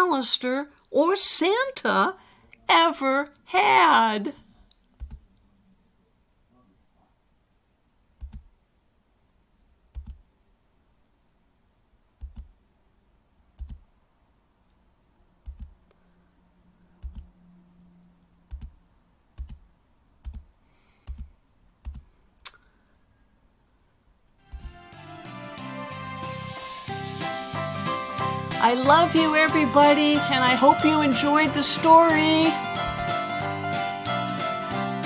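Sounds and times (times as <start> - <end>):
computer control clicks with thuds: 5.0 - 5.2, 8.2 - 8.5, 12.2 - 12.5, 13.6 - 13.8, 15.4 - 15.8.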